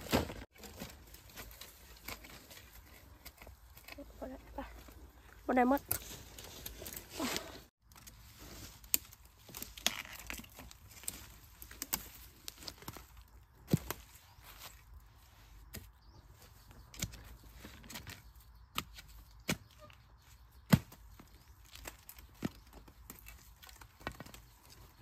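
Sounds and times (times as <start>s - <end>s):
dry leaves rustling: 5.5s - 15.6s.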